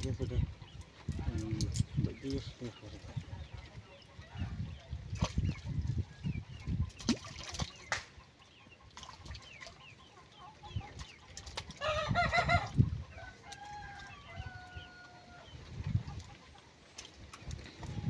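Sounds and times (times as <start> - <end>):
small birds chirping: 0.0 - 18.0
chicken calling: 11.8 - 15.4.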